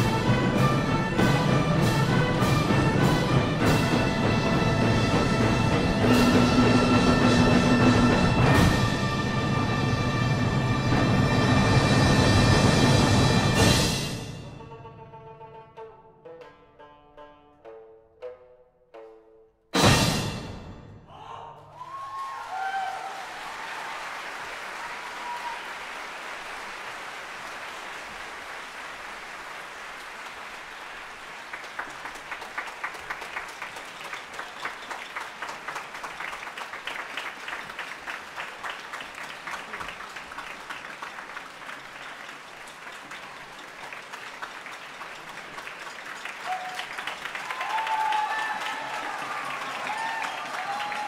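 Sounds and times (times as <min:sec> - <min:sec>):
cheers: 0:21.1 - 0:40.7, 0:45.6 - 0:51.0
audience clapping: 0:21.7 - 0:51.0.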